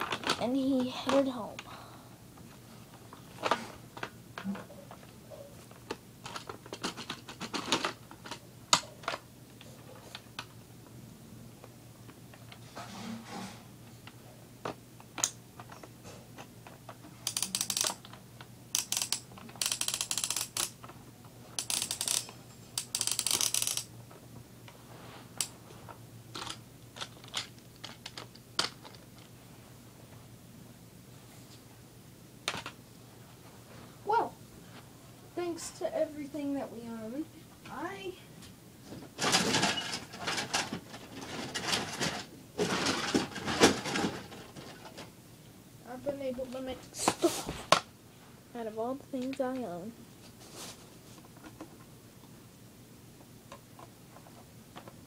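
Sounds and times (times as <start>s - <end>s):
toys rattling and clicking: 0.0s - 1.6s, 5.7s - 9.2s, 15.1s - 23.9s, 26.3s - 29.3s, 39.2s - 45.1s
rattling handling noise: 18.8s - 23.9s.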